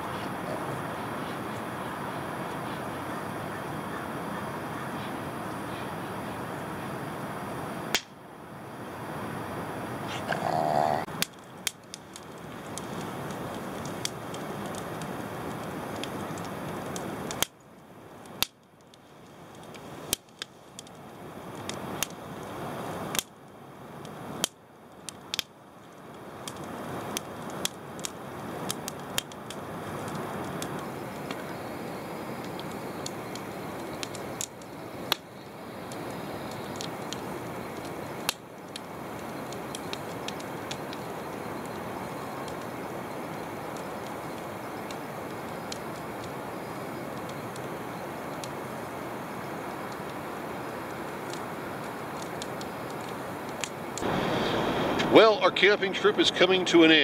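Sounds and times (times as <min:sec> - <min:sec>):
campfire crackling and popping: 0:00.0 - 0:57.0
steady rushing background: 0:54.0 - 0:56.6.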